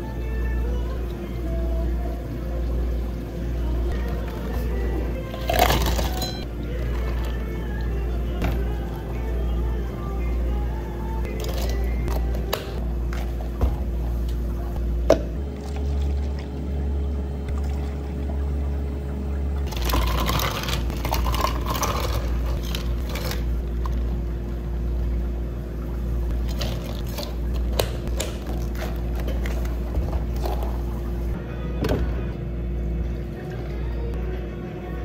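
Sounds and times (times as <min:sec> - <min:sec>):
steady low hum: 0:00.0 - 0:35.0
ice cubes rattling into cups: 0:05.4 - 0:06.4
liquid pouring: 0:17.5 - 0:31.4.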